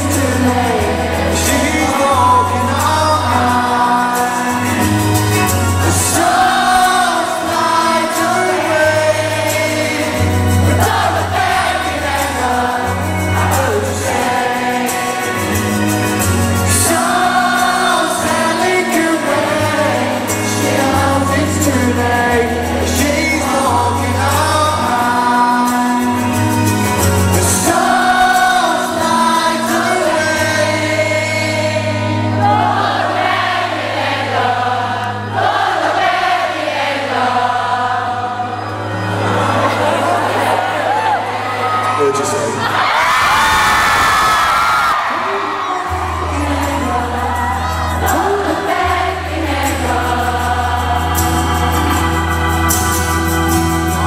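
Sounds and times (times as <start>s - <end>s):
live rock band playing: 0.0s - 33.5s, 45.9s - 54.0s
crowd singing along: 0.0s - 54.0s
man singing lead vocal: 0.0s - 54.0s.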